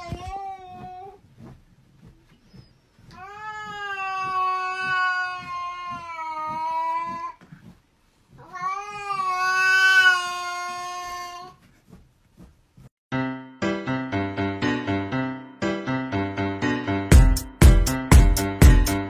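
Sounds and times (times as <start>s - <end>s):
cat meowing: 3.1s - 7.4s, 8.4s - 11.6s.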